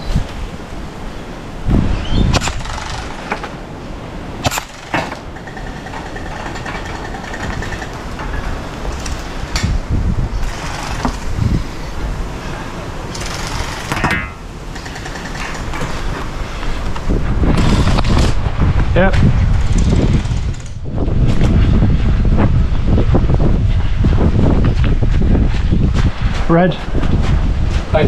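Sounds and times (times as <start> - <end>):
wind rumble on microphone: 0.0 - 28.0
sharp clicks: 14.7 - 15.8.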